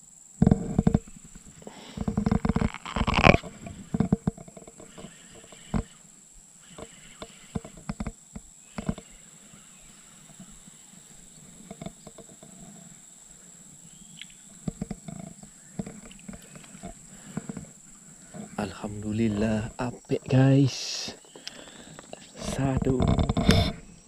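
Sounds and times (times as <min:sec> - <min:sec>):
fishing reel clicks and knocks: 0:02.0 - 0:06.0, 0:06.6 - 0:09.1.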